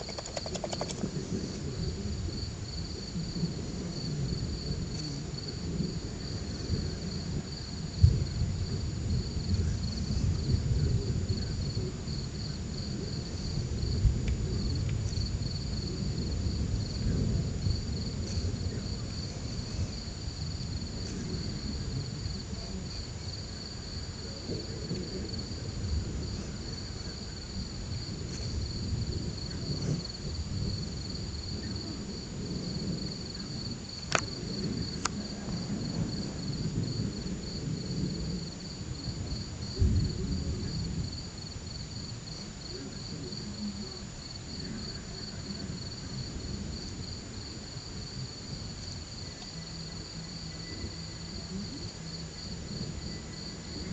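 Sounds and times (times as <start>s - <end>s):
sharp clicks: 0.0s - 1.1s
crickets chirping: 0.0s - 53.9s
high insect trill: 0.0s - 53.9s.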